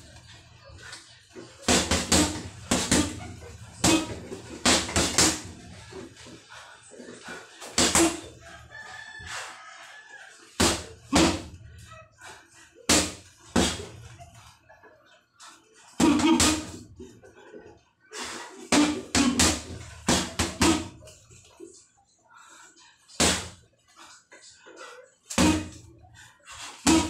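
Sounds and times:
gloves punching heavy bag: 1.6 - 5.7, 7.7 - 8.3, 10.6 - 11.5, 12.9 - 13.9, 16.0 - 16.8, 18.7 - 21.0, 23.2 - 23.6, 25.3 - 25.9.

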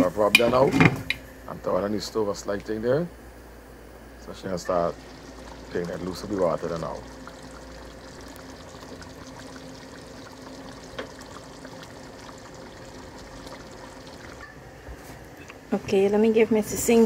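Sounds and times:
curry bubbling in a pot: 4.6 - 14.5.

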